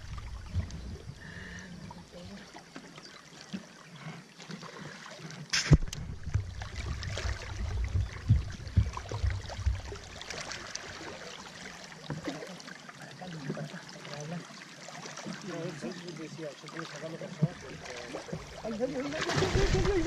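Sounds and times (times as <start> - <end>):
low thumping rumble: 0.0 - 1.5, 5.7 - 10.3
water lapping against boat hull: 0.0 - 20.0
wooden pole in water: 0.0 - 20.0.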